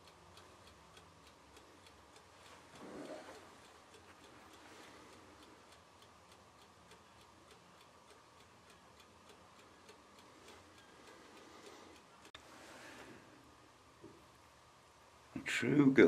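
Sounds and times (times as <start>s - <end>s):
mechanical timer ticking: 0.0s - 12.5s.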